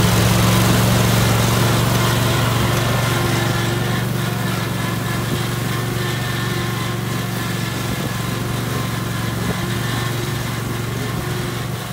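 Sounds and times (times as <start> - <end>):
ride-on mower engine running: 0.0 - 11.9.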